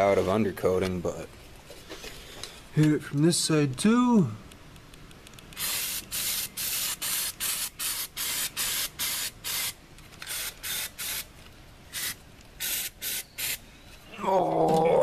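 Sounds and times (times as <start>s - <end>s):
aerosol can spraying spurts: 5.6s - 11.3s, 11.9s - 13.6s.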